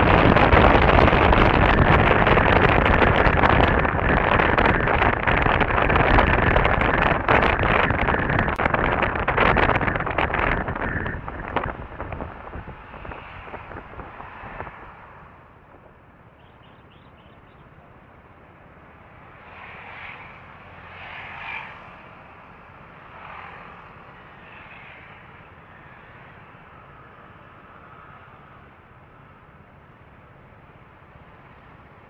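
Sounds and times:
steady low hum: 0.0 - 18.9
vehicles passing by: 0.0 - 32.0.

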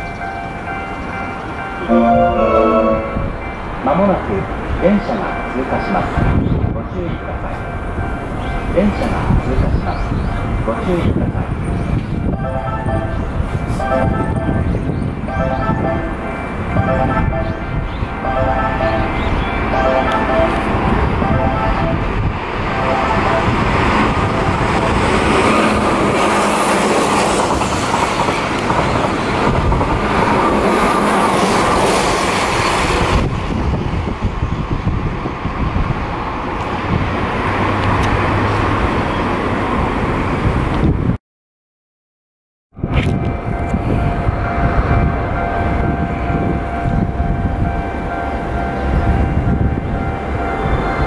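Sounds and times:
train passing at speed: 0.0 - 41.2, 42.8 - 51.0
level crossing warning alarm: 1.8 - 3.6, 12.2 - 24.8.

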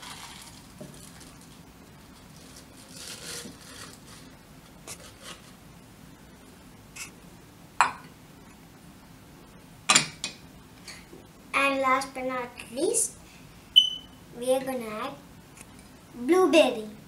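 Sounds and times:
spinach leaves rustling: 0.0 - 4.3.

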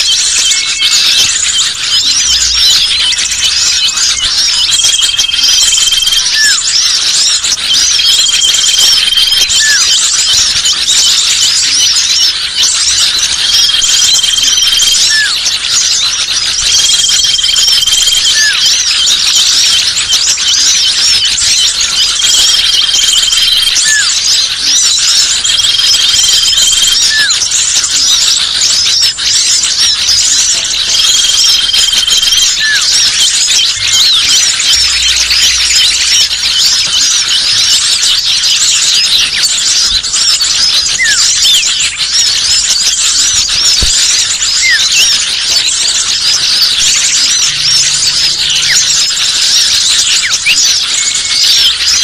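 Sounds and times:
songbirds chattering and calling: 0.0 - 52.0
high whistle: 22.4 - 24.2.

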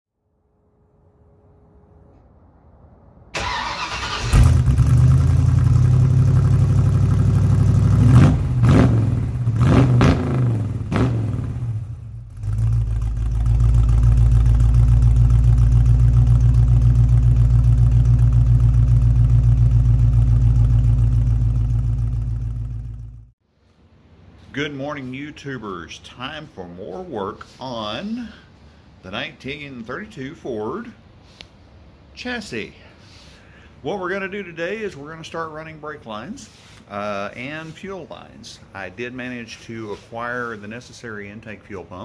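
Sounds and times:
car engine starting and idling: 3.3 - 23.4.

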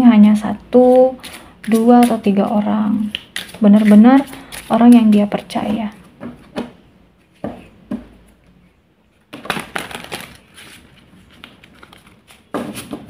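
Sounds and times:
cards being shuffled: 1.2 - 6.6, 9.3 - 13.0.

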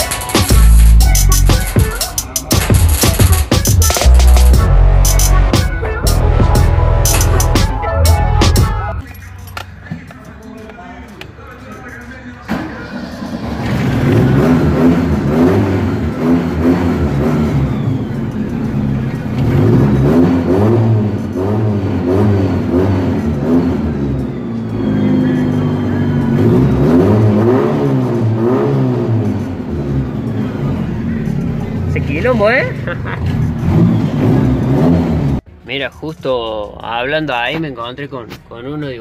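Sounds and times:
car engine revving: 12.5 - 35.5.

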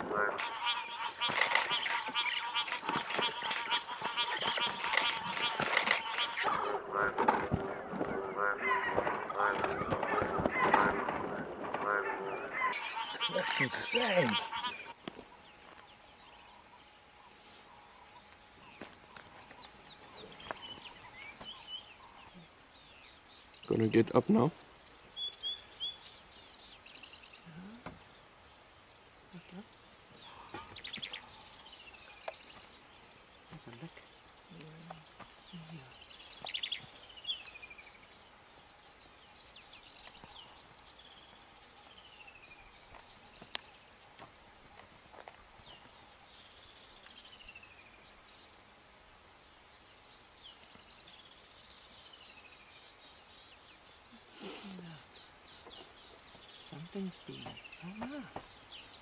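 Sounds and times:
bird chirps and trills: 0.4 - 6.5, 12.2 - 44.1.

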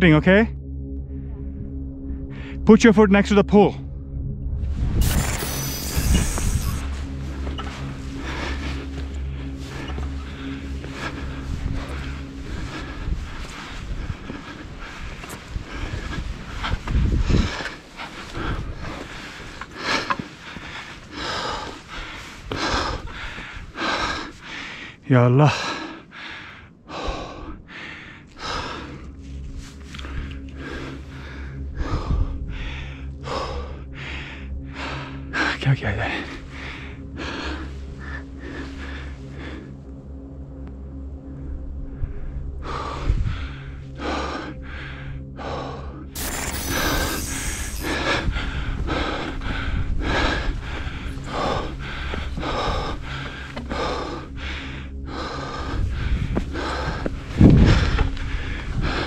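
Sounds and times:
steady low rumble: 0.0 - 25.0, 25.8 - 59.0
person breathing hard: 1.1 - 2.6, 5.0 - 35.6, 36.2 - 59.0.

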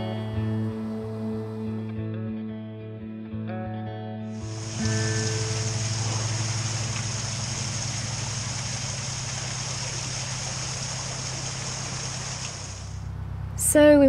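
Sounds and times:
water gushing through lock gates: 4.4 - 13.1
boat engine idling: 4.4 - 13.6.

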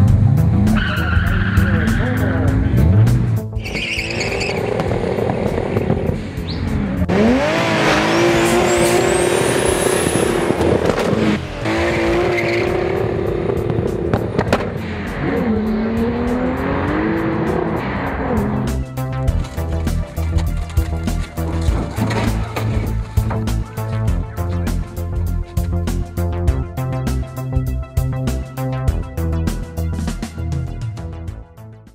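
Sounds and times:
tyres squealing: 0.7 - 2.6, 3.6 - 6.8
car engine revving hard: 2.4 - 18.7.

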